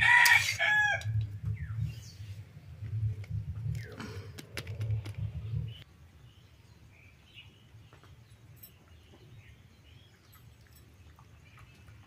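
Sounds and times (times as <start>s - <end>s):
low rumbling on microphone: 1.0s - 5.8s.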